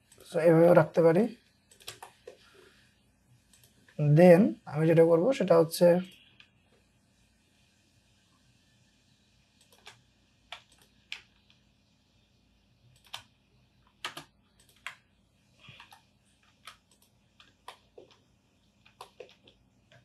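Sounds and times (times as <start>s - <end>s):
keyboard and mouse clicking: 1.7s - 2.4s, 3.5s - 3.8s, 9.6s - 11.6s, 12.9s - 15.0s, 15.7s - 20.0s.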